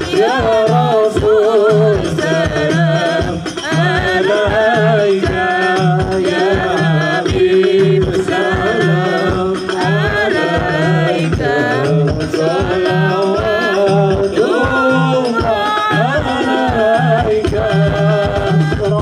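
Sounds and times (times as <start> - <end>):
devotional singing over loudspeaker: 0.0 - 19.0
steady drum beat: 0.0 - 19.0.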